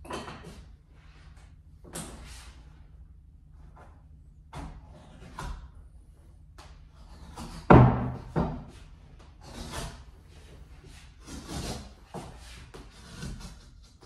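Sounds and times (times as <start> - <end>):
loud wooden knock: 7.7 - 8.7.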